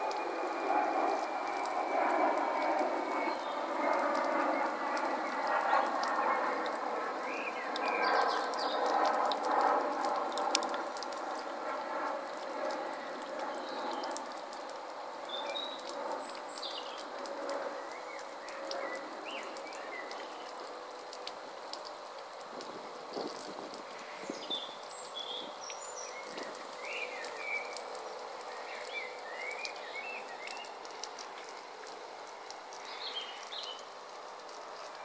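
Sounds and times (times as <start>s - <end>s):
water trickling over stones: 0.0s - 35.0s.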